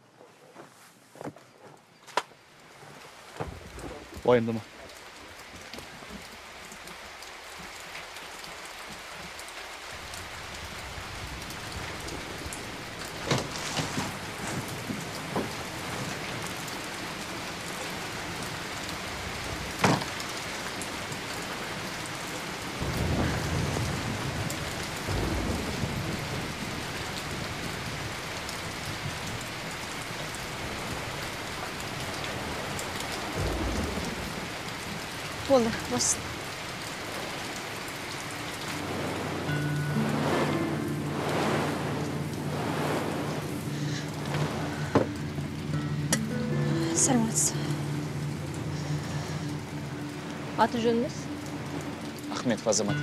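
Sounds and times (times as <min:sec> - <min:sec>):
steady rain: 0:00.0 - 0:53.0
low thunder rumble: 0:09.9 - 0:16.5, 0:22.7 - 0:37.2, 0:38.4 - 0:45.4
sharp thunder cracks: 0:22.8 - 0:28.0, 0:33.3 - 0:34.6.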